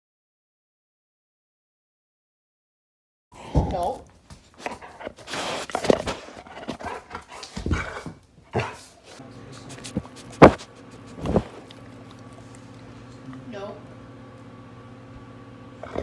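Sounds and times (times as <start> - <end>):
fur brushing microphone: 9.1 - 11.8.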